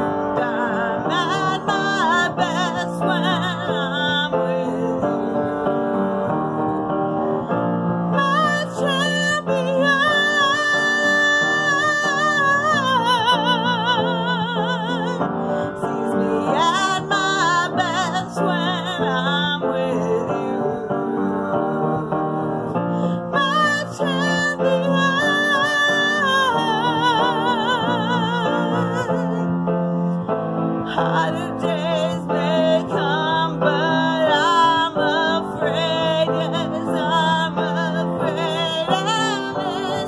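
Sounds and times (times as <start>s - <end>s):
woman singing with vibrato: 0.0s - 40.0s.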